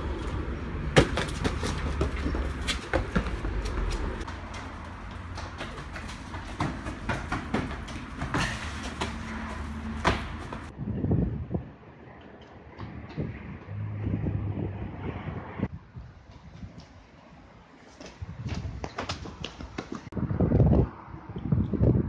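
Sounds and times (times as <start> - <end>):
footfalls on concrete: 0.0 - 10.7, 17.9 - 20.2
wind rumble on microphone: 10.7 - 22.0.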